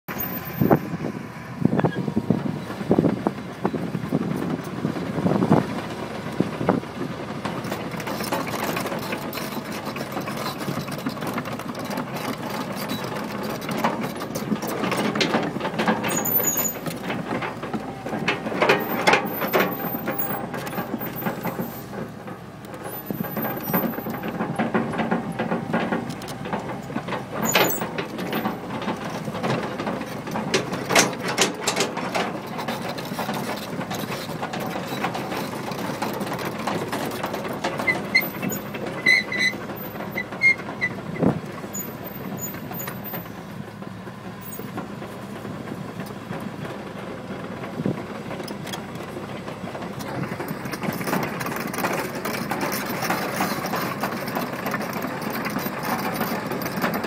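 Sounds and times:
diesel engine running: 0.0s - 57.0s
clatter of track links: 2.8s - 57.0s
high squeals from undercarriage: 16.1s - 16.9s, 37.8s - 41.0s.

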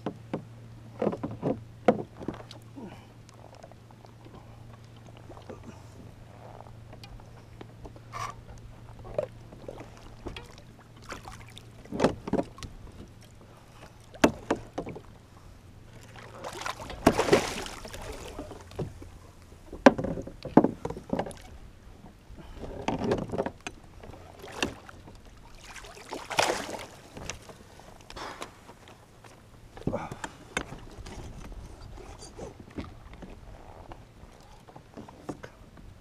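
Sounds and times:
water splashing beside kayak: 0.0s - 36.0s
knocks against kayak hull: 16.8s - 18.0s.

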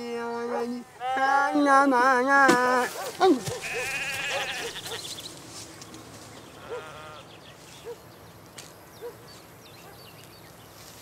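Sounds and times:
goat bleating: 1.0s - 1.7s, 2.7s - 5.1s, 6.6s - 7.3s.

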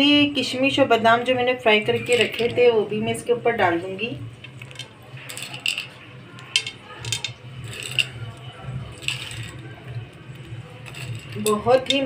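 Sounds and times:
food sprinkled onto metal platter: 4.4s - 12.0s.

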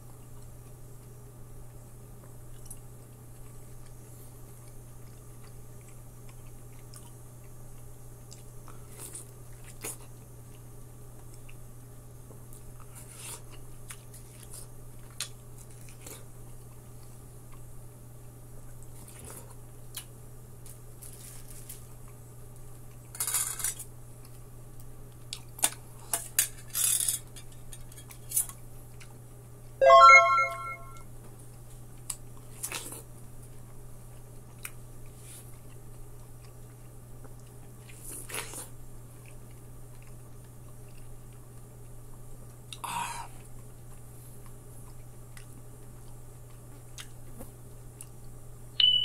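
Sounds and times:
wet chewing of melon: 0.0s - 17.7s, 31.8s - 48.3s
loud ringing tone: 29.8s - 31.0s, 48.8s - 49.0s.

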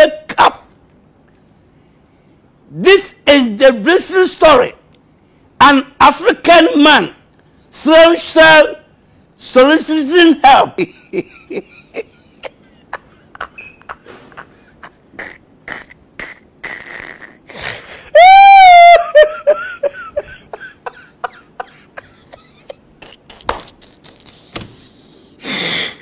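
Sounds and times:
man laughing uncontrollably: 10.5s - 26.0s.

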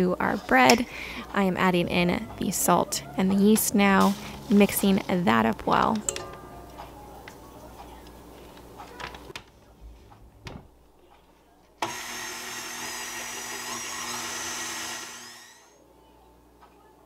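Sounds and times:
stand mixer motor whining: 11.8s - 15.8s.

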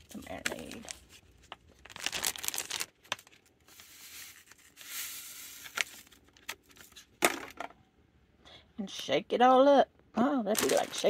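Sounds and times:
plastic bag crinkling: 0.0s - 7.0s, 10.5s - 11.0s.

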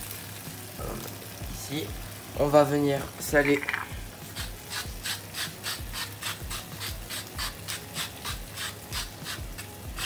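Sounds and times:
salt mill grinding: 3.5s - 10.0s.

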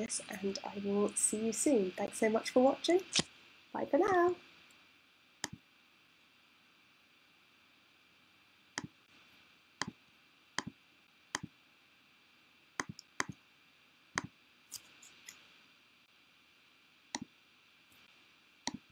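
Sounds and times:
computer mouse clicking: 12.8s - 13.4s, 18.7s - 18.9s.

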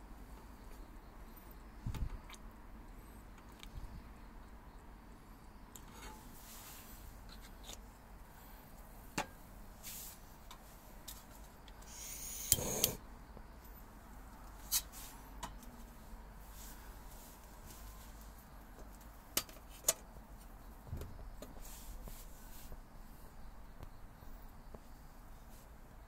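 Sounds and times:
rustling scrape: 5.9s - 7.6s, 9.8s - 10.2s.

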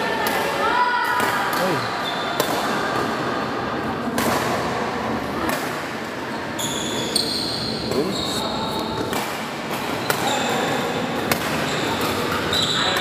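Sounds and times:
shoe squeaks: 6.6s - 9.0s, 11.7s - 13.0s.

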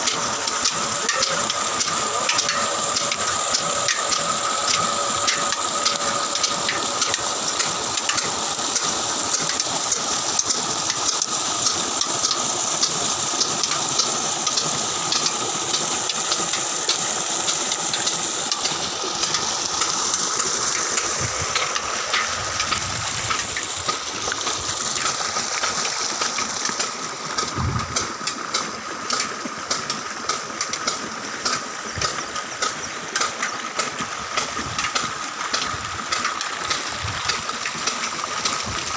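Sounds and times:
water gushing into tank: 0.0s - 38.9s
diesel engine running: 26.7s - 28.3s.

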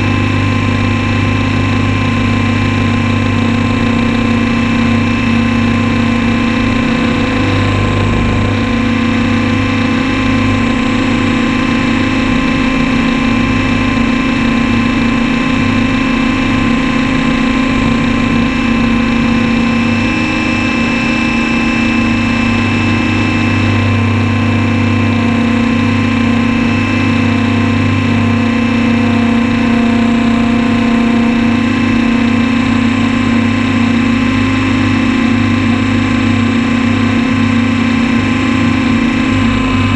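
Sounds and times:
model helicopter motor and rotor: 0.0s - 39.9s.

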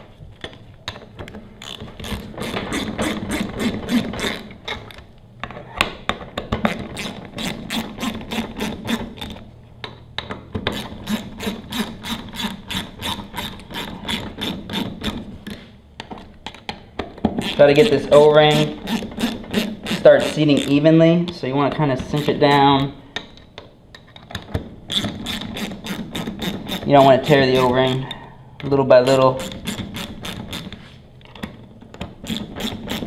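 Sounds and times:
socket ratchet clicking: 1.6s - 5.0s, 10.6s - 15.6s, 24.9s - 28.1s, 29.1s - 30.7s.

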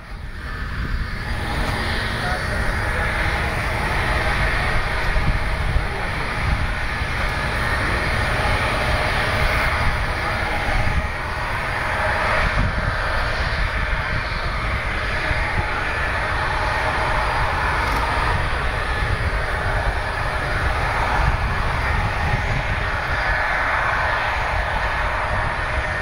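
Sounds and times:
jet engines idling: 0.0s - 26.0s.

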